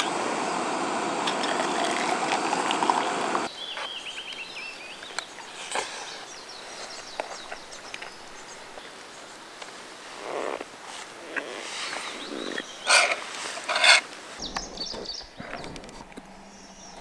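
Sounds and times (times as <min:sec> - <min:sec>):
steady hissing rush: 0:00.0 - 0:17.0.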